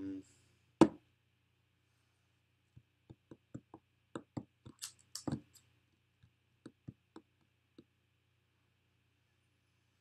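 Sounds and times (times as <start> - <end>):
small irregular clicks and taps: 2.7 - 7.9.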